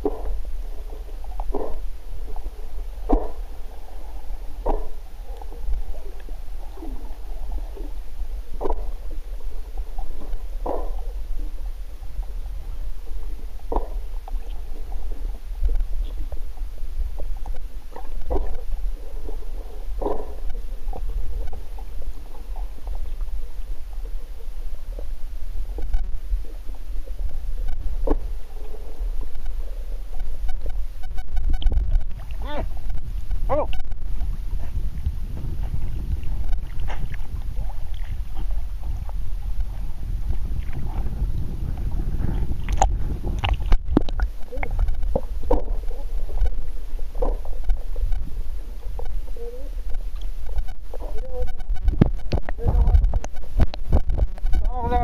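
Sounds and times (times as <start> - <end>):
underwater low rumble: 0.0 - 55.0
air bubbles gurgling and knocking: 31.1 - 46.6, 51.5 - 54.6.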